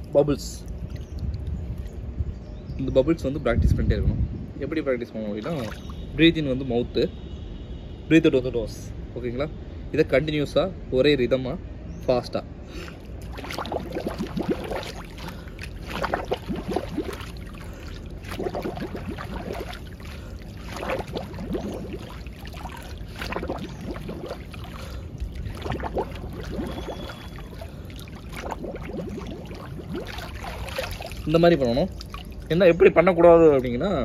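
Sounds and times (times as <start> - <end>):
water splashing: 5.4 - 6.2, 12.8 - 33.6
bubbles blown underwater: 13.2 - 32.5.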